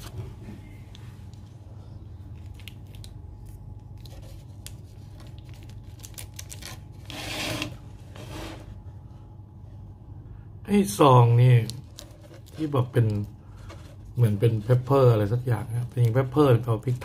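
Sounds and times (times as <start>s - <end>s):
steady low hum: 0.0s - 17.0s
plastic packaging crinkling: 2.3s - 7.2s, 11.4s - 17.0s.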